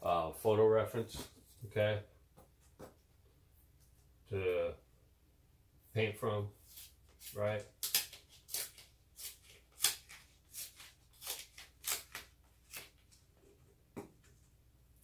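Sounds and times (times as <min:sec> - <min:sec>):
masking tape ripping: 0:06.7 - 0:13.2.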